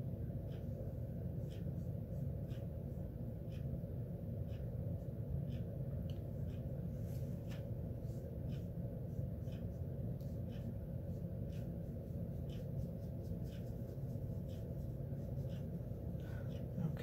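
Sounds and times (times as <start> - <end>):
steady low hum: 0.0 - 17.0
brush strokes on paper: 6.9 - 17.0.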